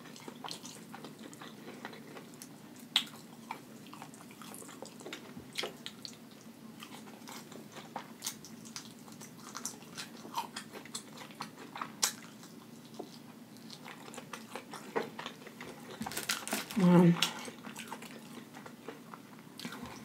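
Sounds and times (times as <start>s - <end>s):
mouth chewing and biting: 6.8s - 20.0s.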